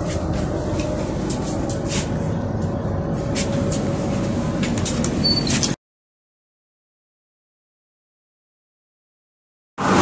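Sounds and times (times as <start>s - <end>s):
train coach rumble: 0.0s - 5.8s.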